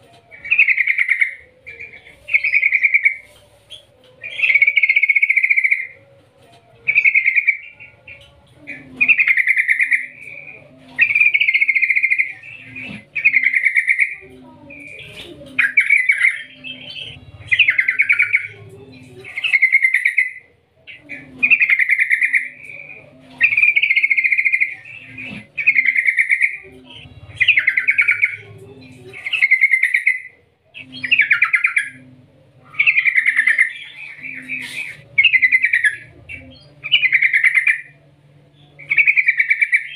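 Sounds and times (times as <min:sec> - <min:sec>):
bird singing trilled phrases: 0:00.3 - 0:06.0, 0:06.8 - 0:32.1, 0:32.7 - 0:38.0, 0:38.6 - 0:39.9.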